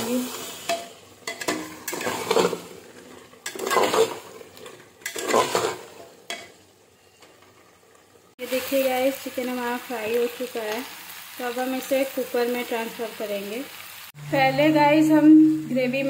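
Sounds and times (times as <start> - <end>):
metal spoon scraping a pot: 0.4 - 7.6.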